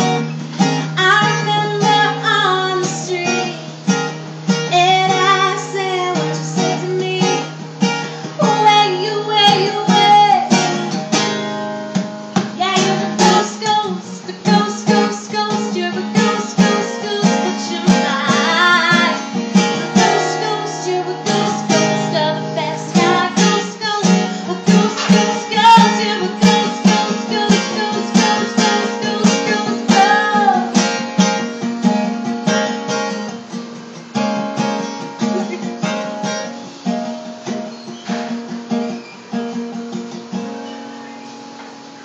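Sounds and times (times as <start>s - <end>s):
woman singing: 0.0s - 11.0s, 12.4s - 31.5s
acoustic guitar strumming: 0.0s - 42.0s.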